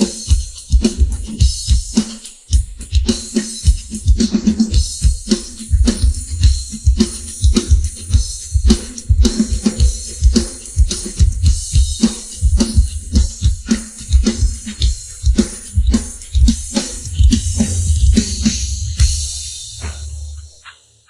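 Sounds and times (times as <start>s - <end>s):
cymbals and hi-hat: 0.0s - 21.0s.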